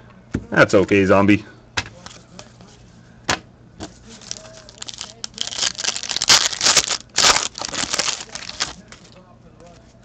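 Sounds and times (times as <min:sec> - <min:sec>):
foil wrapper crinkling: 0:04.1 - 0:09.2.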